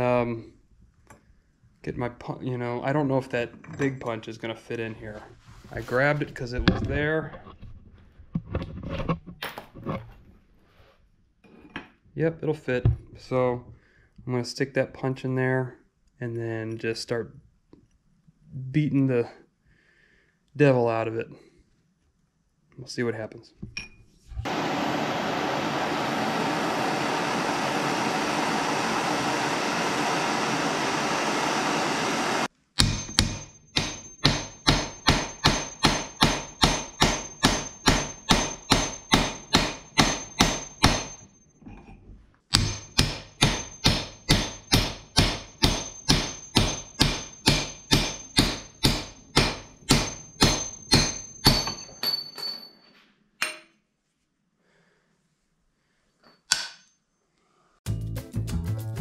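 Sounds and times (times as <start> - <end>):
hammer striking steel punch: 32.8 - 41.2, 42.5 - 52.6, 56.5 - 56.8.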